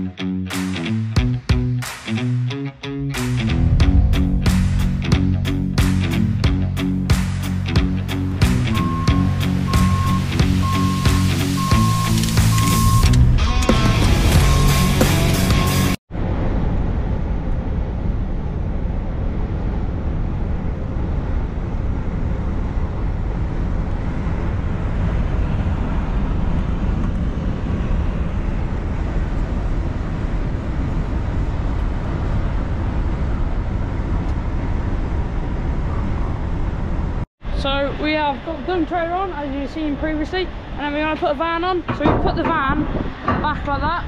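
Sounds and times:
tyre and road noise: 0.0 - 44.0
lorry engine drone: 1.6 - 34.4.

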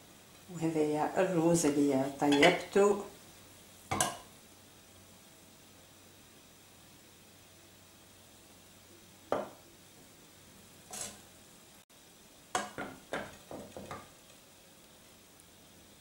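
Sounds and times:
ladle knocking on plate: 9.3 - 9.6, 12.6 - 14.0.

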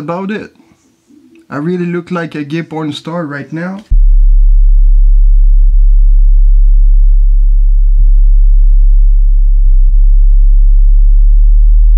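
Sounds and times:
deep electronic hum: 3.9 - 11.9.

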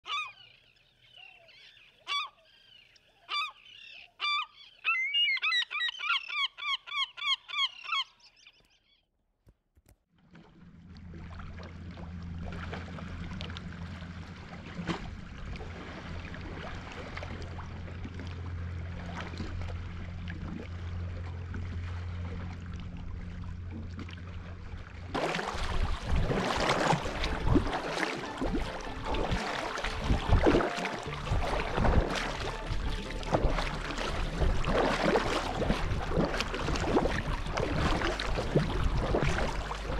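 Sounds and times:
bird calls: 0.0 - 9.1
low hum: 10.4 - 39.9
wind and water hiss: 25.1 - 39.9.

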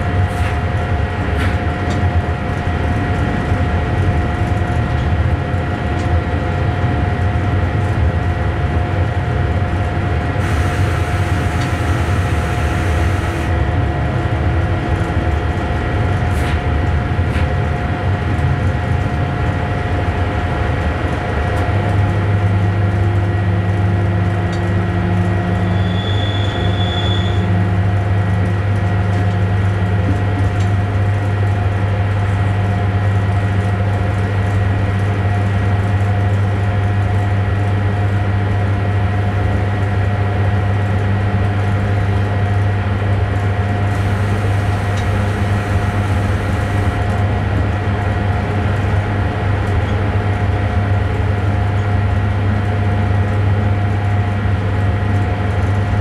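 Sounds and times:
electric train hum and rumble: 0.0 - 56.0
whining tones: 10.5 - 13.5, 43.9 - 47.0.

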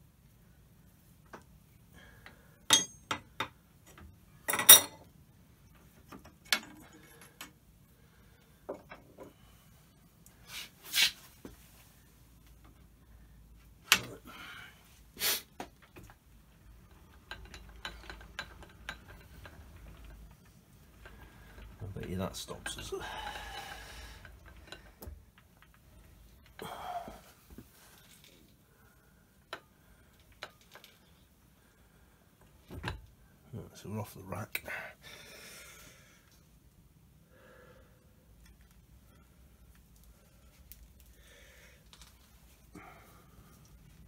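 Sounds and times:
metal tools clinking on metal: 2.7 - 3.2, 4.5 - 5.1.

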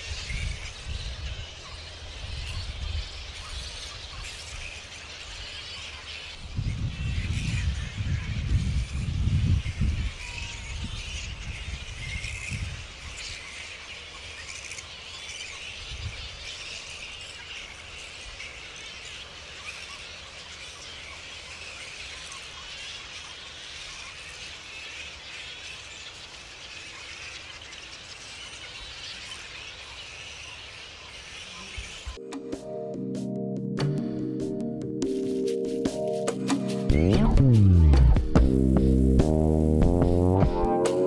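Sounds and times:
flying foxes squeaking: 0.0 - 32.3
low rumble: 36.8 - 41.0.

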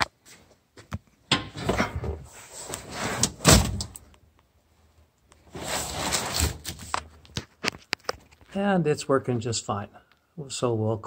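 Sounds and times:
rustling and shuffling: 0.0 - 8.7.

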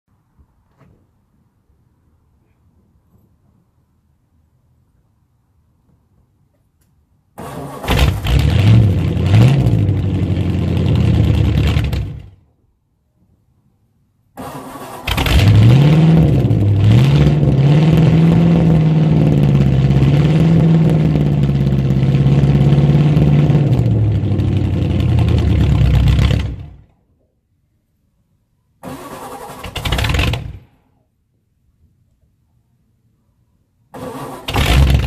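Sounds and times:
car engine cranking and firing: 7.4 - 12.4, 14.4 - 26.9, 28.8 - 30.8, 34.0 - 35.0
engine revving: 7.4 - 12.4, 14.4 - 26.8, 28.8 - 30.7, 34.0 - 35.0.

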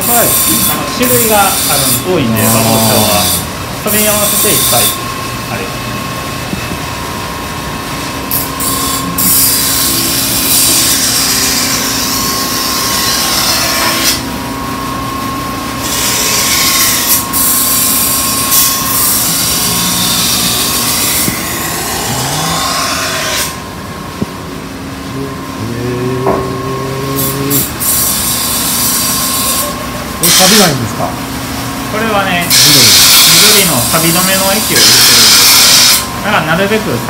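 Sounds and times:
knife grinding on sharpening wheel: 0.0 - 3.5, 8.3 - 14.2, 15.8 - 23.6, 25.6 - 29.6, 34.6 - 36.1
machine motor hum: 2.2 - 30.3.

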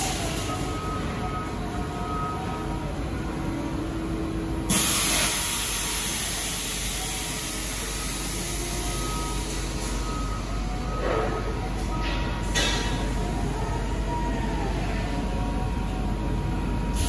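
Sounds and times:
loud hiss: 4.7 - 8.6.

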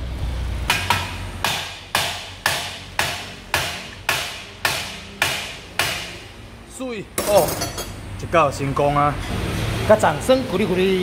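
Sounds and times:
hammer striking metal: 0.7 - 6.2.

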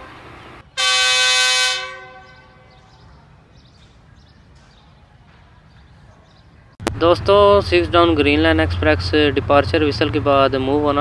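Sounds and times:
locomotive horn blast: 0.7 - 2.9.

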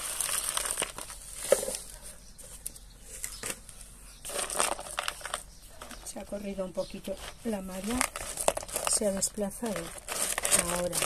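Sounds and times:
gravel pouring into plastic pot: 0.0 - 1.9, 4.2 - 5.5, 7.7 - 11.0
hand rustling in pot: 0.0 - 11.0.

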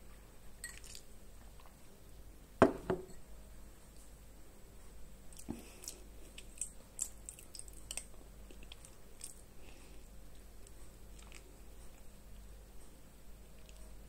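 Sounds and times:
wet mouth eating sounds: 5.3 - 9.5.

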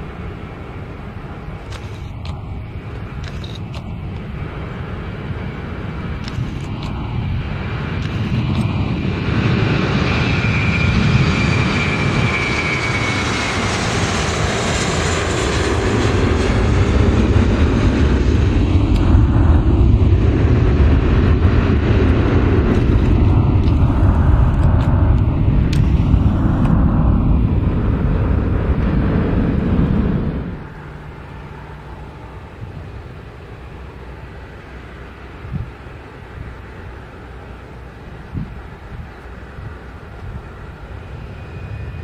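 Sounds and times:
high engine whine: 0.0 - 42.0
jet engines at takeoff thrust: 0.0 - 42.0.

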